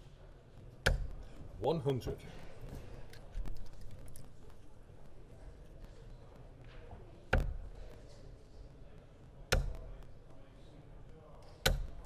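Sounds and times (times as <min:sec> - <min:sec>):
darts striking a dartboard: 0:09.5 - 0:09.8.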